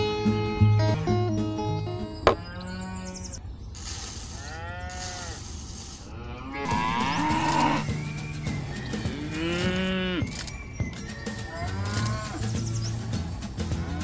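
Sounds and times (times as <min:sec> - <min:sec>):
cattle mooing: 0:06.1 - 0:07.9, 0:09.1 - 0:10.3.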